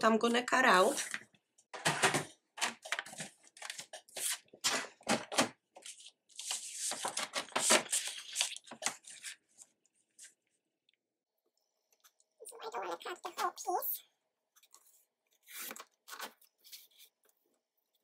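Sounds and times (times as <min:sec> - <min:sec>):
paper rustling and scraping: 0:01.8 - 0:10.5, 0:14.6 - 0:17.2.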